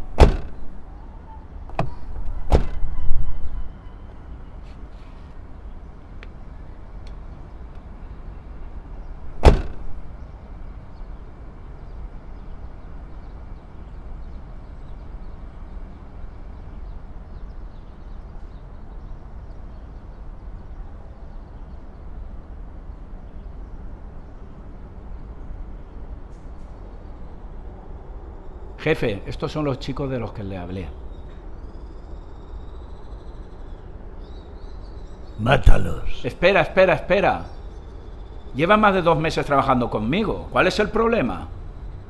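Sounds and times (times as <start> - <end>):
car door slamming: 0.1 - 0.7, 1.7 - 2.9, 9.4 - 10.0.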